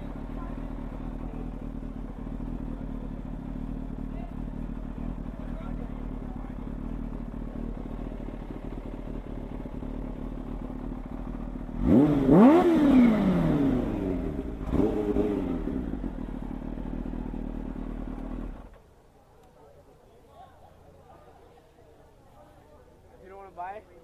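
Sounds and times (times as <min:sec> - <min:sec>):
motorcycle engine idling and revving: 0:00.0 - 0:19.1.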